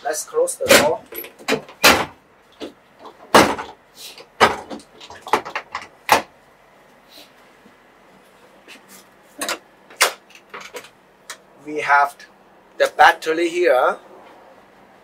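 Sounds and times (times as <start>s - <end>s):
doors knocking shut: 0.6s - 3.8s, 4.4s - 6.3s.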